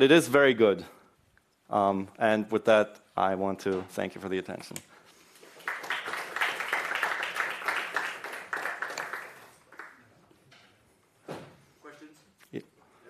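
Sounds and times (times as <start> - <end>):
audience applauding: 5.5 - 10.1.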